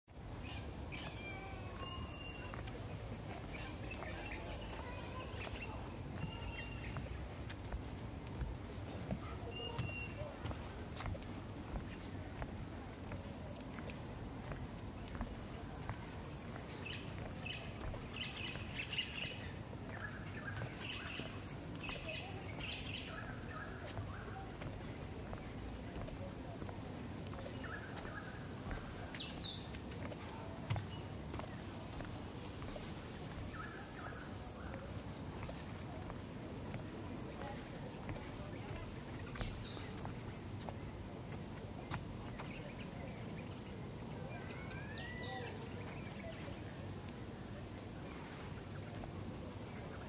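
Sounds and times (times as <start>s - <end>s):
steady high-pitched hiss: 0.1s - 50.0s
birds chirping: 0.3s - 12.5s, 13.1s - 47.1s
wild birds chirping and whistling: 44.2s - 46.6s.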